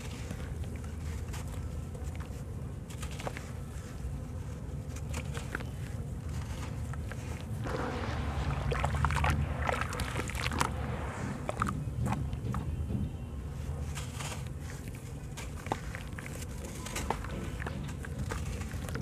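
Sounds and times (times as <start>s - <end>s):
hands churning water: 7.4s - 12.2s
sand clumps falling into water: 7.6s - 11.8s.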